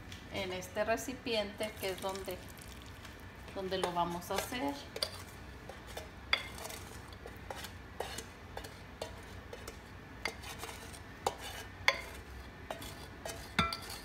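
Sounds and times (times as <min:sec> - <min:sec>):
wooden spoon scraping metal pan: 0:03.5 - 0:14.0.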